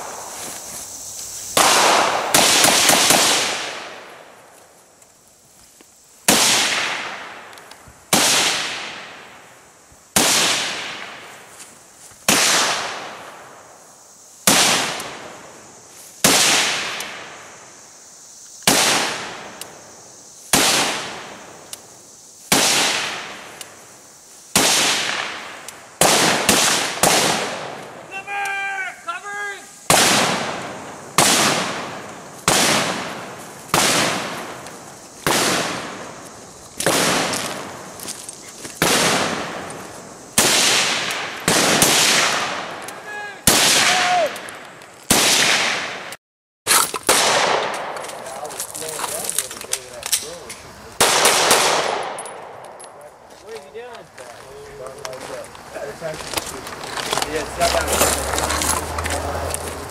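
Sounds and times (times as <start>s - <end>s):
echoing gunshots: 1.6s - 4.4s, 6.3s - 7.5s, 8.1s - 9.3s, 10.2s - 11.3s, 12.3s - 13.6s, 14.5s - 15.4s, 16.2s - 17.4s, 18.7s - 19.6s, 20.5s - 21.6s, 22.5s - 23.5s, 24.5s - 28.0s, 29.9s - 34.6s, 35.2s - 36.2s, 36.8s - 37.9s, 38.8s - 42.8s, 43.4s - 46.1s, 47.0s - 48.2s, 51.0s - 52.7s
person speaking: 53.0s - 59.8s.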